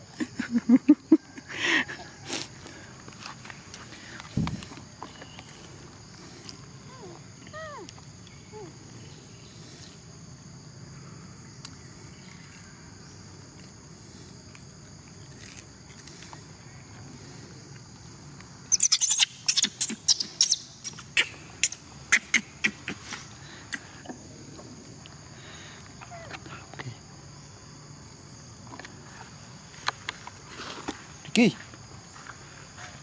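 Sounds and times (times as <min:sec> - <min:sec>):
high-pitched insect drone: 0:03.6 - 0:29.3.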